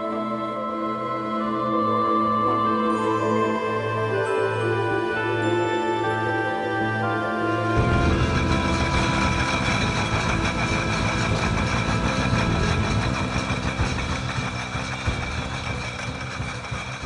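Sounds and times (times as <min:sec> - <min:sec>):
machinery rumbling: 0:07.8 - 0:17.0.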